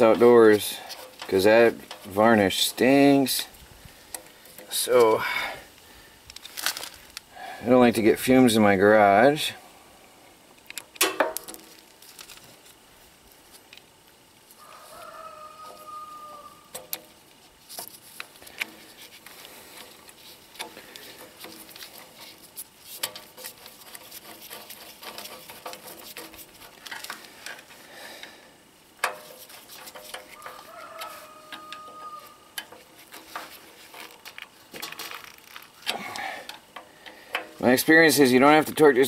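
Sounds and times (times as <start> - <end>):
chicken calling: 14.6 - 16.7, 30.4 - 32.6
screwdriver clicking on metal: 19.8 - 27.7, 29.0 - 37.6.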